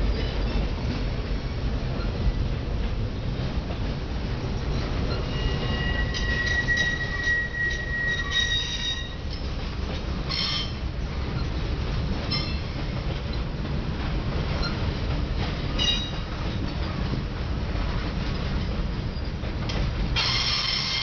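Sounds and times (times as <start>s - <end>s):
train wheels rumbling on rails: 0.0s - 21.0s
high wheel squeal: 5.1s - 9.4s, 10.3s - 10.8s, 20.2s - 21.0s.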